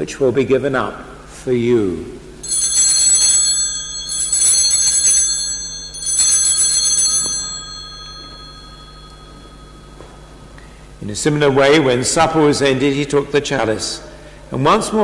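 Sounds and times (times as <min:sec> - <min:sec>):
altar bells ringing: 0:02.4 - 0:11.9.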